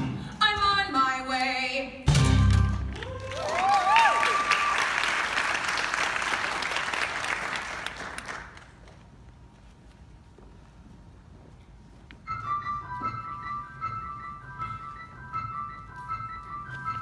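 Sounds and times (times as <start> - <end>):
audience applauding: 2.9 - 8.9
person cheering: 3.0 - 4.9.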